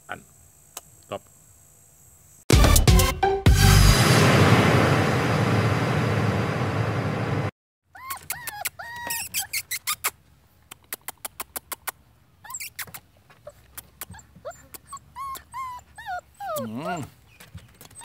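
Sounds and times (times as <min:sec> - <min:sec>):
electronic intro music: 0:02.5 - 0:07.5
puppies whining and squeaking: 0:07.9 - 0:10.2, 0:12.4 - 0:18.0.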